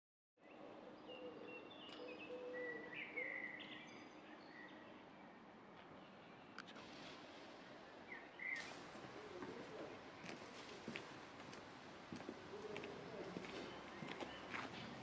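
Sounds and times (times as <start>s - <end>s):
birds chirping and whistling: 1.0s - 4.9s, 8.1s - 8.8s.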